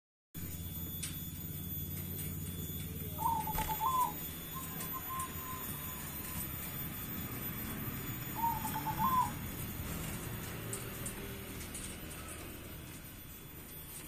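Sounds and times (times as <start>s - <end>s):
low hum: 0.4s - 14.0s
dove cooing: 2.7s - 11.0s.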